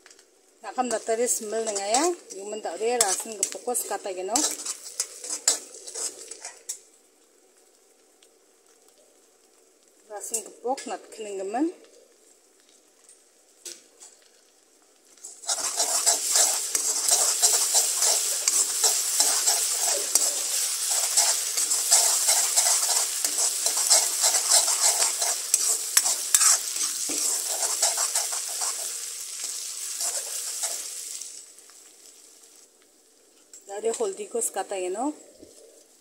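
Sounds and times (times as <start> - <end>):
food sizzling in oil: 0.0 - 11.6, 15.1 - 36.0
metal spoon scraping pan: 0.8 - 6.6, 15.4 - 30.9.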